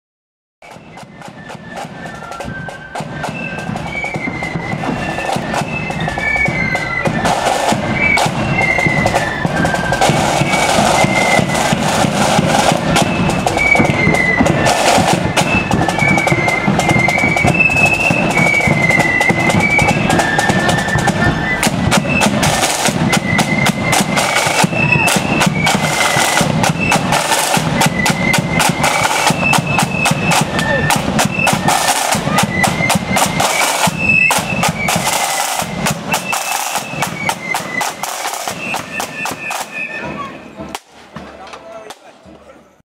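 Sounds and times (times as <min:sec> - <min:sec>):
side drums rattling: 0:00.6 - 0:42.5
flute band playing: 0:00.6 - 0:42.8.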